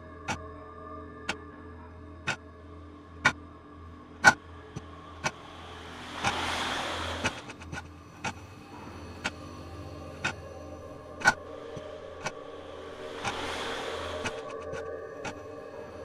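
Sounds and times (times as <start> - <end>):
low drone and held tones: 0.0 - 16.0
hiss: 5.2 - 7.8, 12.2 - 15.4.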